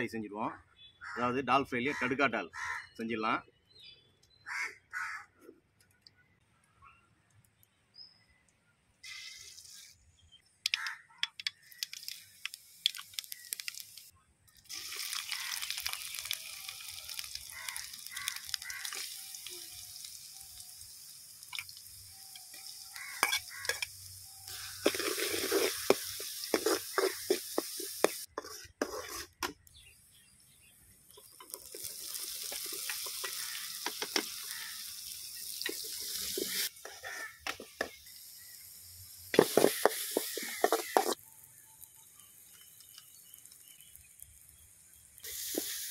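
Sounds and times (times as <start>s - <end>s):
hot oil sizzling: 9.0s - 10.1s, 10.7s - 29.4s, 30.9s - 45.9s
oil popping and crackling: 10.6s - 29.9s, 31.0s - 45.9s
metal ladle scraping pan: 22.5s - 23.9s, 24.5s - 29.4s, 35.6s - 37.6s, 39.4s - 41.2s.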